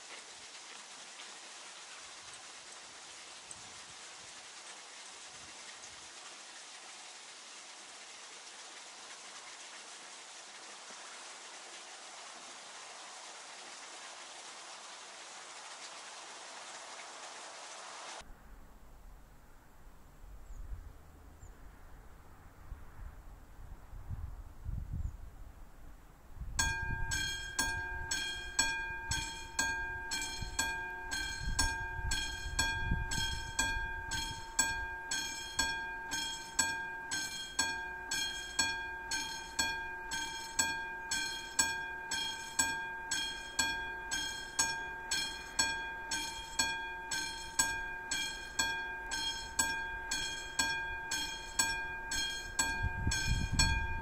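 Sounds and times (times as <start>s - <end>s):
level crossing warning bell ringing: 26.6s - 54.0s.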